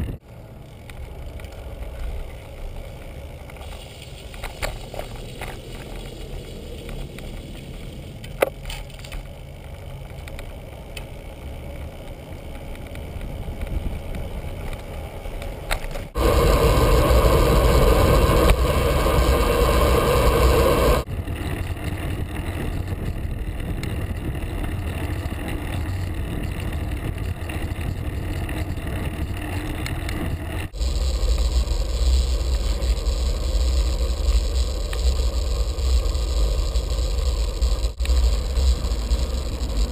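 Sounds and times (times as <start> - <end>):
tyre rumble on paved road: 0.0 - 39.9
wind rushing over microphone: 13.1 - 29.4
sharp tick: 30.8 - 39.9.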